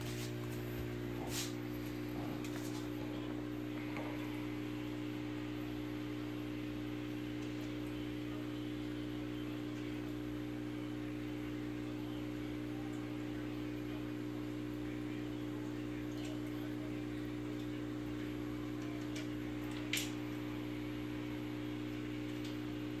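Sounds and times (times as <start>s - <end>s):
aquarium equipment hum: 0.0s - 23.0s.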